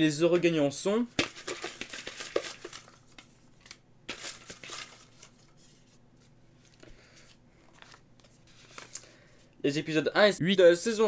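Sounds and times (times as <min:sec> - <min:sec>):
paper slips rustling: 0:01.2 - 0:05.6.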